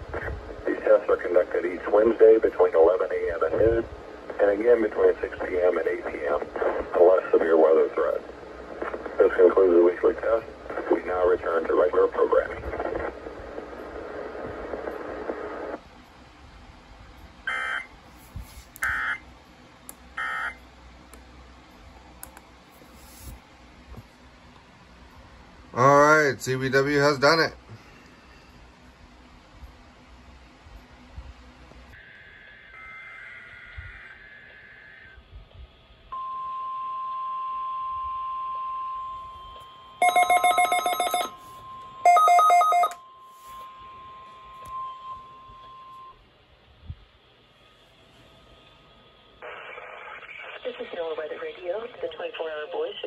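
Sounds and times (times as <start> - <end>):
radio audio: 0.0 - 15.8, 25.8 - 28.1, 49.4 - 53.0.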